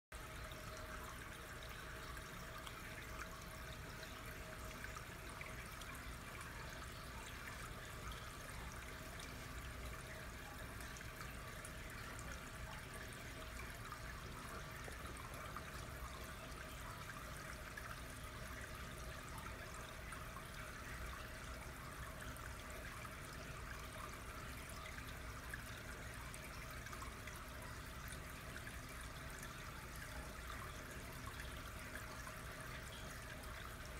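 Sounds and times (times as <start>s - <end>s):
water running through flume: 0.2s - 33.9s.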